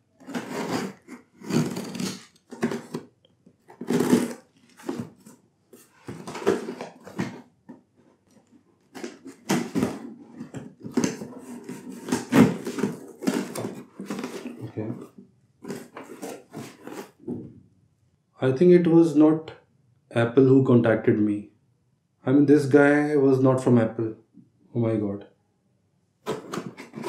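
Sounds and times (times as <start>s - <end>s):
cardboard rustling: 0.1s - 17.4s, 26.2s - 27.0s
packing tape tearing: 0.2s - 3.1s, 3.7s - 5.4s, 6.0s - 7.4s, 8.9s - 14.7s, 15.6s - 17.2s, 26.2s - 27.0s.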